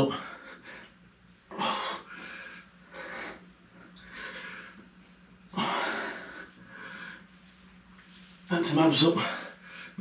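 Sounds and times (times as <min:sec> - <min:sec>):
man breathing hard: 0:00.0 - 0:04.9, 0:05.5 - 0:07.4, 0:09.2 - 0:10.0.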